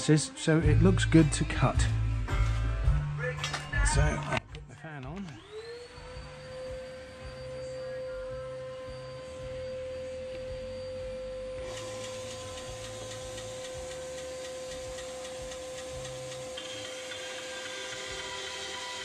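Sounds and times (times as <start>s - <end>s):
workshop fan running: 0.0s - 19.0s
bandsaw motor running: 5.2s - 19.0s
high motor whine: 5.2s - 19.0s
loud motor noise: 5.3s - 19.0s.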